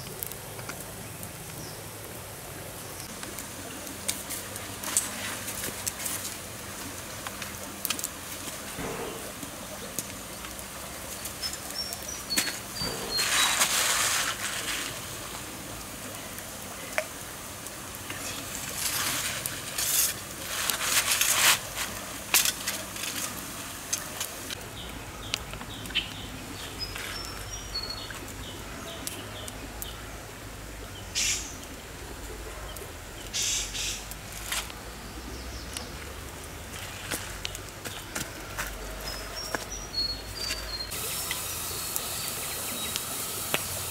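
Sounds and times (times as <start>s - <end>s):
stream hiss: 0.0s - 32.4s, 33.0s - 38.6s, 39.3s - 43.9s
rustling: 11.2s - 15.5s, 18.1s - 24.6s.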